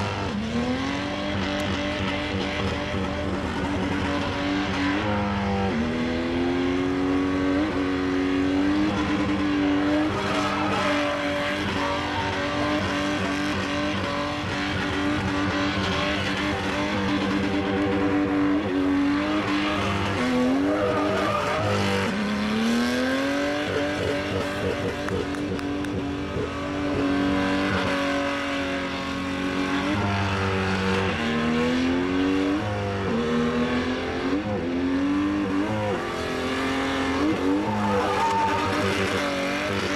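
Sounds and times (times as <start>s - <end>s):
engine revving high: 0.0s - 39.9s
tyres squealing on pavement: 9.6s - 18.5s, 19.3s - 22.3s, 37.4s - 39.7s.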